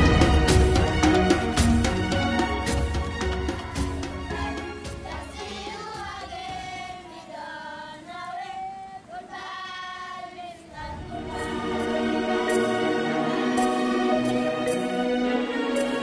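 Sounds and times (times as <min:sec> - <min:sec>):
music track: 0:00.0 - 0:06.4, 0:11.0 - 0:16.0
children singing: 0:03.7 - 0:16.0.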